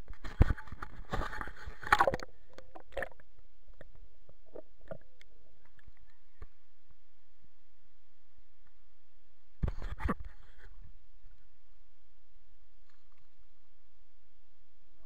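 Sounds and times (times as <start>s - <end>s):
faint underwater clicks: 0.0s - 7.0s, 12.8s - 13.6s
water splashing and sloshing: 0.3s - 3.3s.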